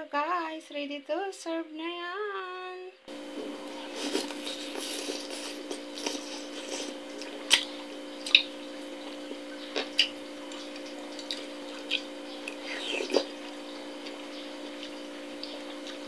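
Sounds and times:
low hum: 3.1 - 16.0
person chewing: 3.2 - 16.0.

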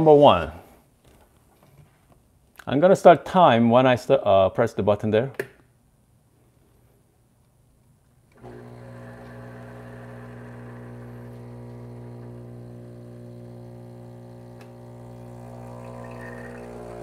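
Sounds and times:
espresso machine pump humming: 8.4 - 17.0.

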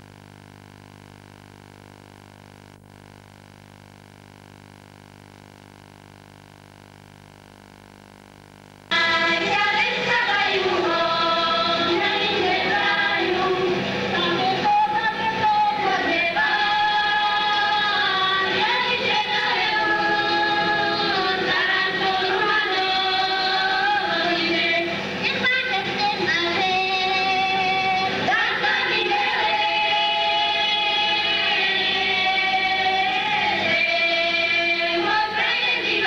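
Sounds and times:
faint steady hum: 0.0 - 36.0
group singing folk song: 8.9 - 36.0.

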